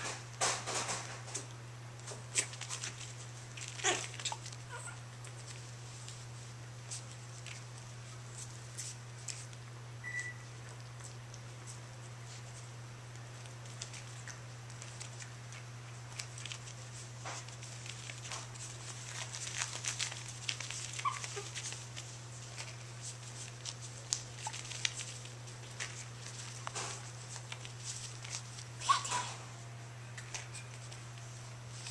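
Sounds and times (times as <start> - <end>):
paws scratching and tapping: 0.0 - 9.7, 10.6 - 29.4
steady low hum: 0.0 - 31.9
puppy squeak: 21.0 - 21.6.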